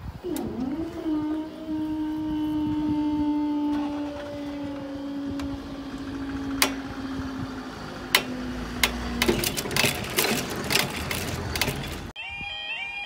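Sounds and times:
train engine tone: 0:00.0 - 0:13.0
train wheels clicking and rattling: 0:03.5 - 0:12.1.

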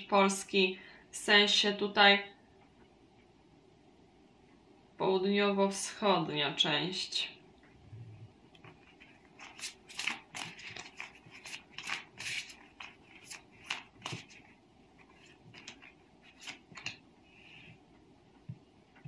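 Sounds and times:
cards being shuffled: 0:08.6 - 0:17.0.

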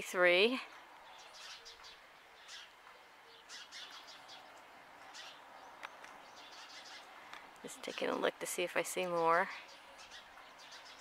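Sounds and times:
faint bird chirps: 0:01.0 - 0:05.4, 0:09.6 - 0:11.0.

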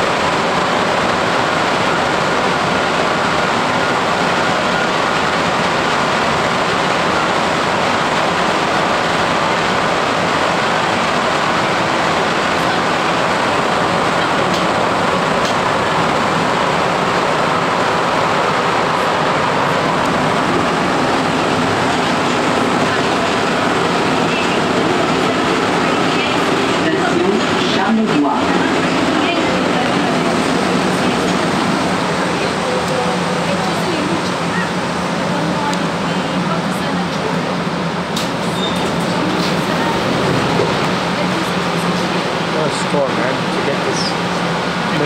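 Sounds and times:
metro car rushing through tunnel: 0:00.0 - 0:45.0.

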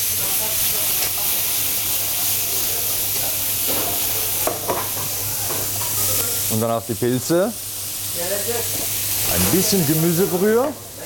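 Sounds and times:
meat and vegetables sizzling: 0:00.0 - 0:11.0.

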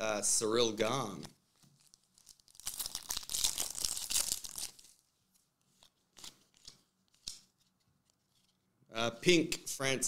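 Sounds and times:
foil wrapper tearing: 0:01.8 - 0:05.0.

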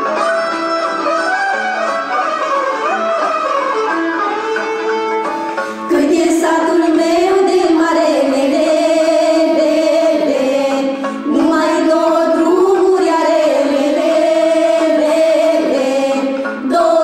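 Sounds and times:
girls and woman singing folk song: 0:05.9 - 0:17.0.

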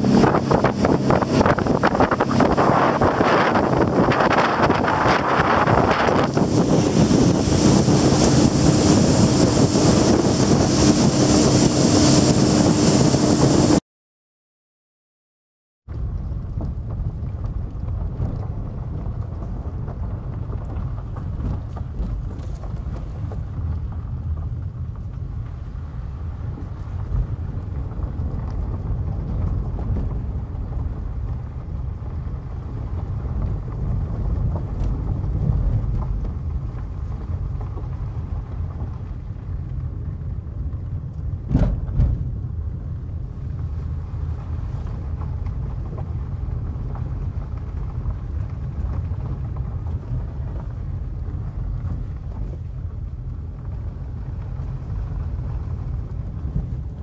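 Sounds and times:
low rumble: 0:00.0 - 0:13.8, 0:15.9 - 0:57.0
motorboat engine running: 0:00.0 - 0:13.8, 0:16.0 - 0:57.0
water rushing: 0:00.0 - 0:13.8
wind buffeting microphone: 0:00.0 - 0:13.8, 0:15.9 - 0:57.0.

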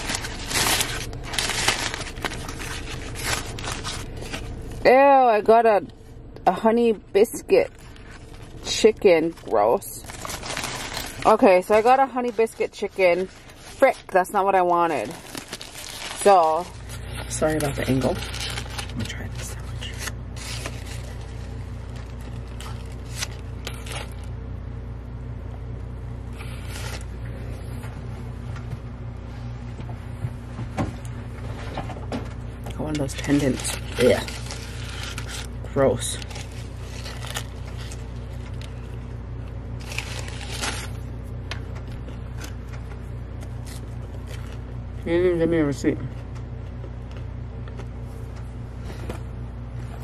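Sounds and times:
car engine idling: 0:00.0 - 0:28.8
rustles and clicks of handling: 0:07.4 - 0:24.4, 0:26.3 - 0:44.8.

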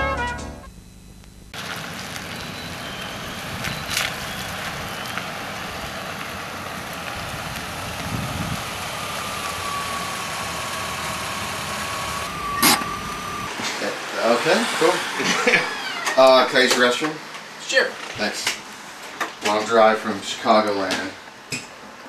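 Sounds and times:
car engine running: 0:00.0 - 0:17.6
tyres hissing on wet asphalt: 0:01.6 - 0:21.5.

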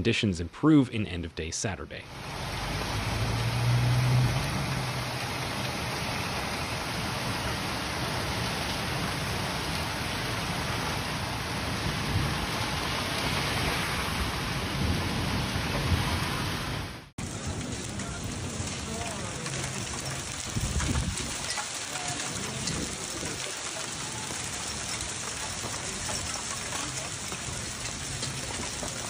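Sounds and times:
hail and heavy rain pelting: 0:02.1 - 0:29.0.

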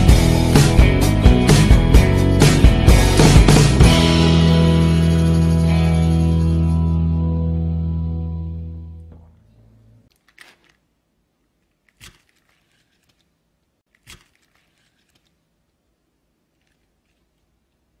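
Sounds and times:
background music: 0:00.0 - 0:09.2.

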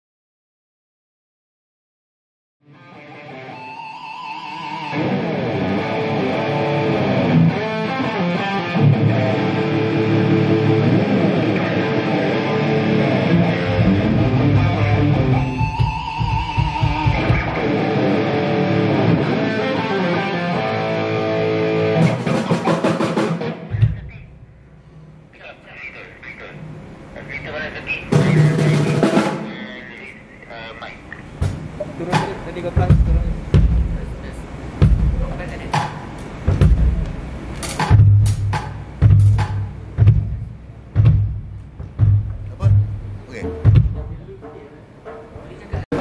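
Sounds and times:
electric guitar through amplifier: 0:02.6 - 0:24.6.

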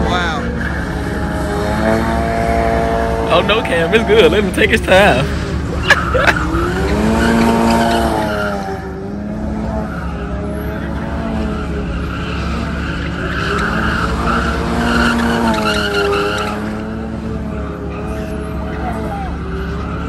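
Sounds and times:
car engine revving: 0:00.0 - 0:20.0
tyres squealing on asphalt: 0:00.0 - 0:20.0.

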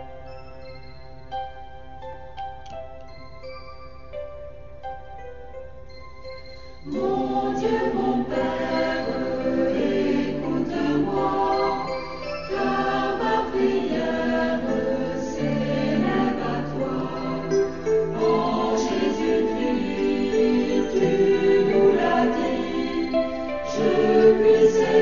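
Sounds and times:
choir singing a hymn: 0:06.8 - 0:25.0.

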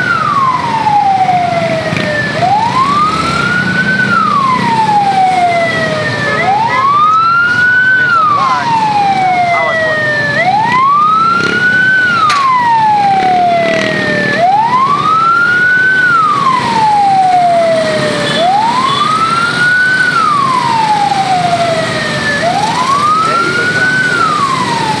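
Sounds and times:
road noise: 0:00.0 - 0:25.0
siren wailing: 0:00.0 - 0:25.0.

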